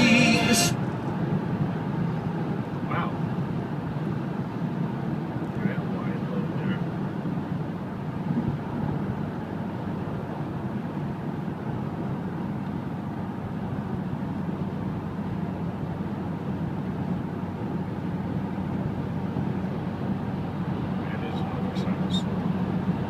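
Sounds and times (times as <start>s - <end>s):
low engine drone: 0.0s - 3.5s, 7.8s - 23.0s
tyre and road roar: 0.0s - 23.0s.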